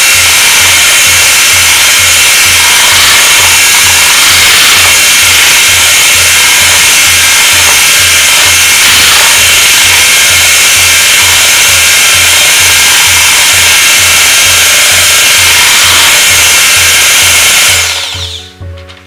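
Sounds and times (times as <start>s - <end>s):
electric hand mixer whirring: 0.0s - 18.5s
background music with low beat: 17.8s - 19.0s.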